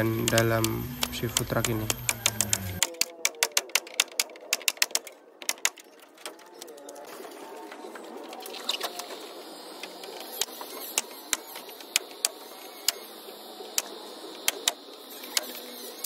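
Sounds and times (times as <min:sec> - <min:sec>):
nail gun firing: 0:00.0 - 0:05.8.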